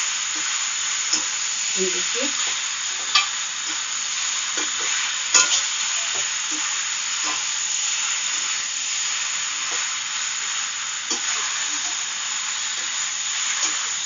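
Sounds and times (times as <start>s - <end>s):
pasta sizzling in a pan: 0.0s - 14.0s
spatula stirring and tossing: 2.3s - 7.7s.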